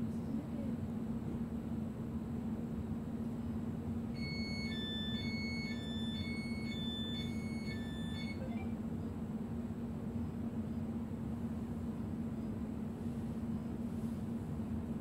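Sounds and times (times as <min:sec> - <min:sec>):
train electrical hum: 0:00.0 - 0:15.0
electronic two-tone beeps: 0:04.2 - 0:08.7.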